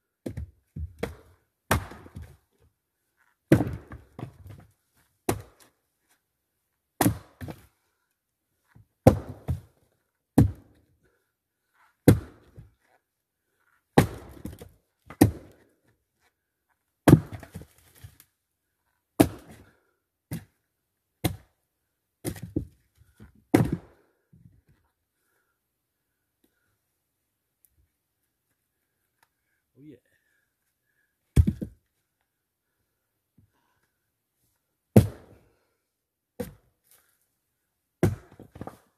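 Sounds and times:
axe chopping into tree trunk: 1.0s - 2.3s, 3.5s - 4.6s, 5.3s - 5.6s, 7.0s - 7.6s, 9.0s - 9.6s, 12.0s - 12.6s, 14.0s - 15.6s, 17.0s - 17.6s, 19.2s - 19.6s, 21.2s - 21.5s, 23.5s - 23.9s, 31.4s - 31.7s, 35.0s - 35.4s, 36.4s - 36.6s, 38.0s - 38.8s.

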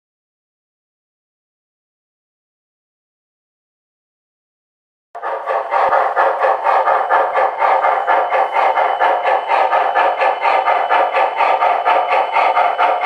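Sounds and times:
electronic steam locomotive chuffing: 5.2s - 13.0s.

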